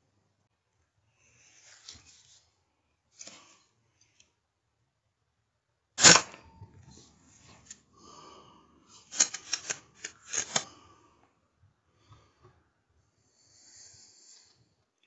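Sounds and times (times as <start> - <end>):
air rifle mechanical clicks: 9.1 - 10.7.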